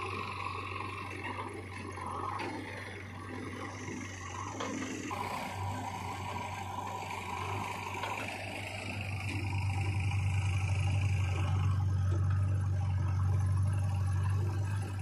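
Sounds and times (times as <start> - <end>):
diesel engines droning: 0.0 - 15.0.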